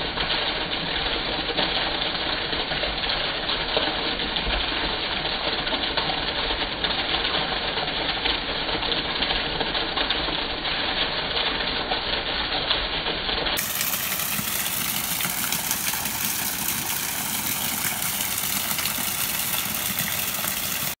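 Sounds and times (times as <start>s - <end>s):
rainwater pouring off roof: 0.0s - 21.0s.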